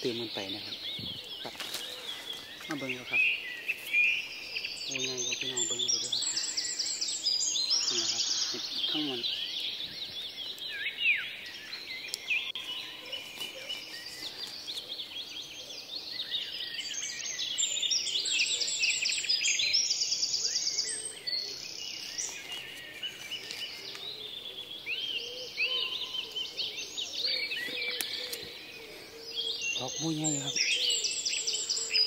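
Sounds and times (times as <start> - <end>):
birds chirping and whistling: 0.0 - 32.0.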